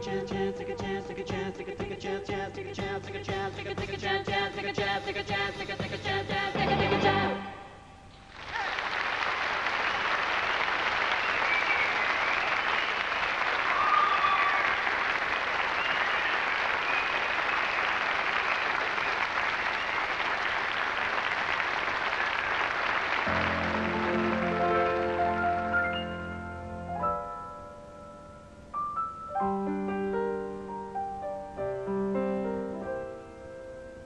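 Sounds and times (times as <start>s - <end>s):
audience applauding: 8.3s - 25.8s
piano playing: 23.2s - 34.0s.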